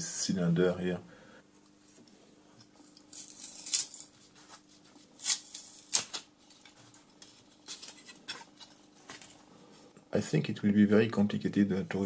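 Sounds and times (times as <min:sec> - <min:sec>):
thin metal tearing and scraping: 0:02.7 - 0:04.4, 0:05.0 - 0:08.9.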